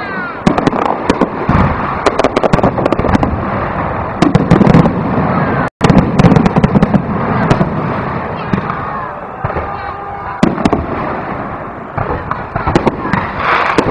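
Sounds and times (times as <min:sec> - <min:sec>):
firework shells bursting: 0:00.4 - 0:03.4, 0:12.0 - 0:13.9.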